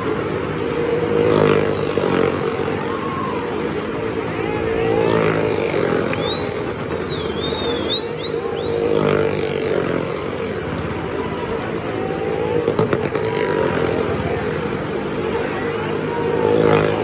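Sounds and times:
car and motorcycle engines running: 0.0 - 17.0
high wavering whistles: 6.0 - 9.1.

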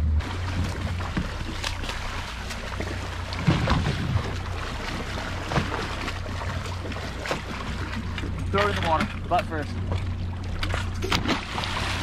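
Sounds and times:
boat engine idling: 0.0 - 12.0
water slapping against hull: 0.1 - 12.0.

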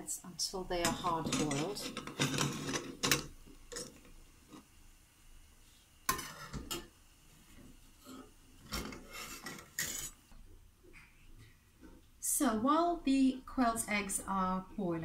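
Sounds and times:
metal spoon scraping saucepan: 0.8 - 4.6, 8.8 - 10.2.

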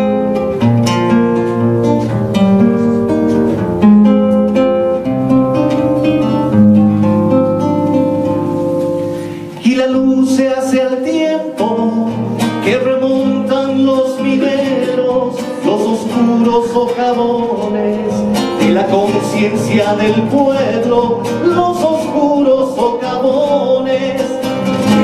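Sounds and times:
acoustic guitar strummed and picked: 0.0 - 25.0
man singing: 9.4 - 25.0.

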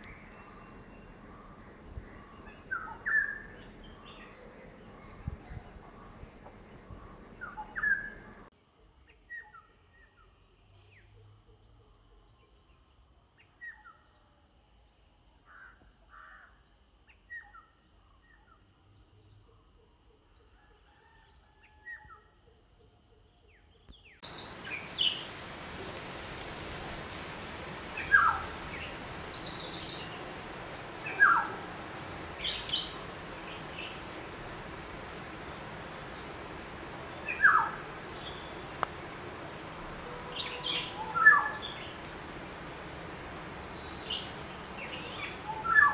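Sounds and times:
background hiss: 0.0 - 21.4, 22.6 - 45.9.

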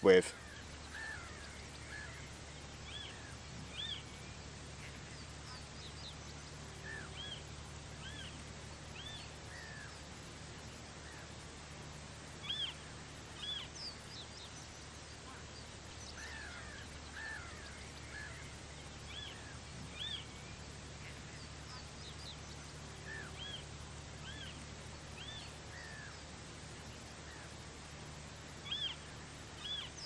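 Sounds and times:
birds calling: 0.0 - 30.0
faint low hum: 0.0 - 30.0.

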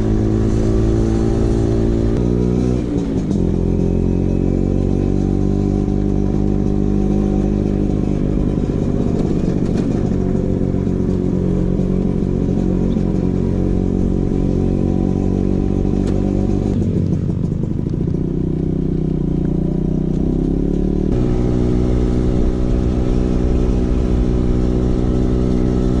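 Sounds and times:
scooter engine revving: 0.0 - 26.0.

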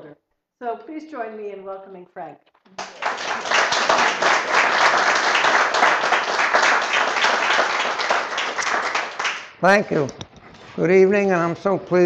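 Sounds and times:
audience applauding: 2.7 - 9.6.

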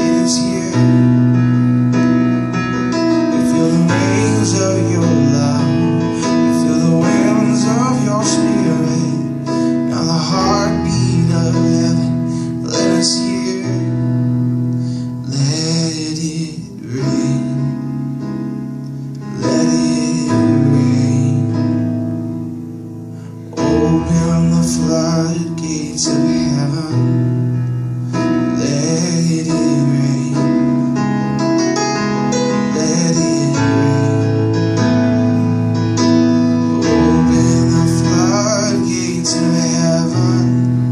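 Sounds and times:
man singing: 0.0 - 1.4, 2.8 - 14.3, 15.2 - 17.9, 19.2 - 22.0, 23.5 - 27.4, 28.1 - 31.0, 32.1 - 35.0, 36.6 - 40.9
electronic keyboard playing: 0.0 - 40.9.

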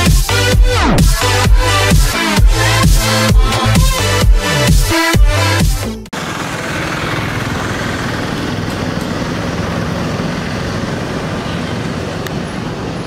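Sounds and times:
street traffic noise: 6.1 - 13.0
low engine hum: 6.2 - 13.0.

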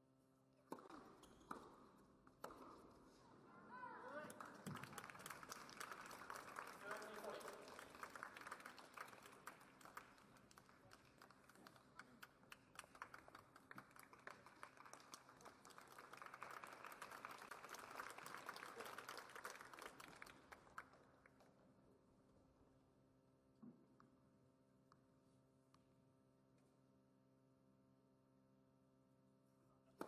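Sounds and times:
spectators clapping: 4.0 - 21.5.

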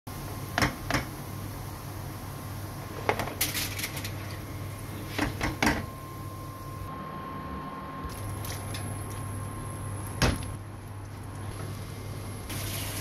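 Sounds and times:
hot oil sizzling: 11.8 - 13.0.

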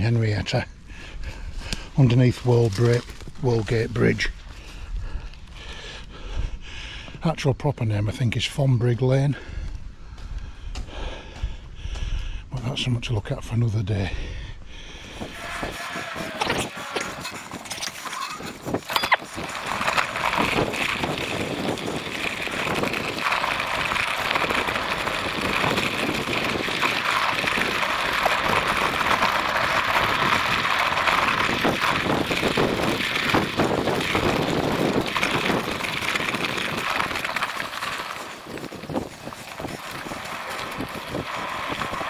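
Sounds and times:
bike tyre and ride noise: 0.0 - 7.2, 8.4 - 12.8, 14.3 - 42.0.

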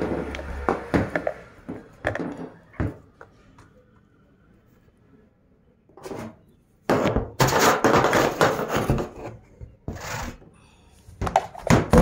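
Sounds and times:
plastic parts knocking and scraping: 0.0 - 3.4, 6.0 - 10.5, 11.1 - 12.0.

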